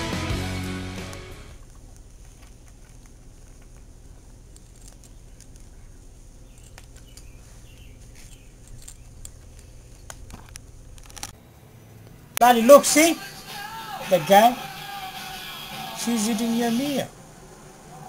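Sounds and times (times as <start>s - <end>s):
steady low hum: 0.0s - 18.0s
cat crunching dry kibble: 1.6s - 11.4s
bird chirps: 5.0s - 9.5s.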